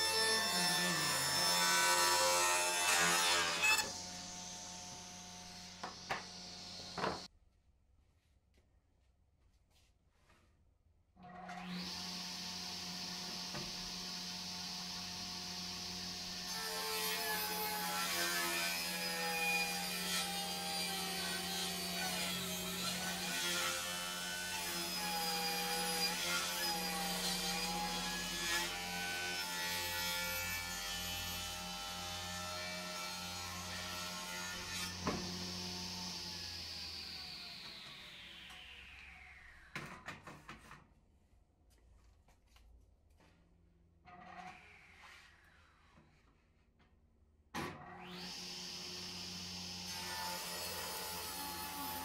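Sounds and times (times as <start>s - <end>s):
saw ripping a board: 0.0s - 7.3s, 11.6s - 38.3s
table saw running: 0.0s - 7.3s, 11.6s - 39.8s.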